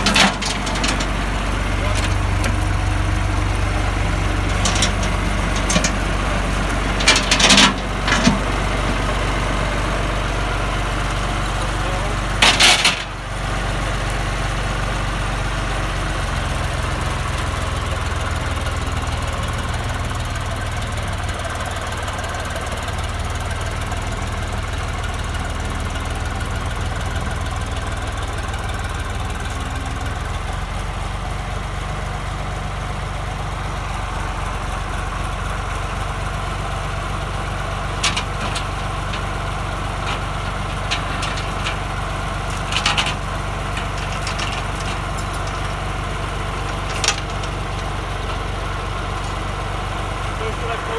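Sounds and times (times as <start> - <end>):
metal chain clinking: 0.0 - 3.0, 4.4 - 8.6, 10.9 - 13.2, 38.0 - 39.3, 40.0 - 48.4
tractor diesel engine idling: 0.0 - 50.9.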